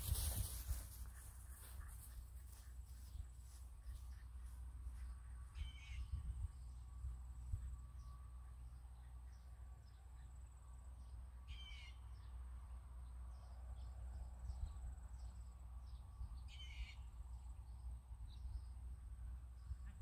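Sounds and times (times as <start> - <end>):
low steady rumble: 0.0 - 20.0
faint bird chirps: 3.0 - 6.8, 11.4 - 12.4, 14.5 - 17.2
bird calling: 5.6 - 6.1, 11.5 - 12.0.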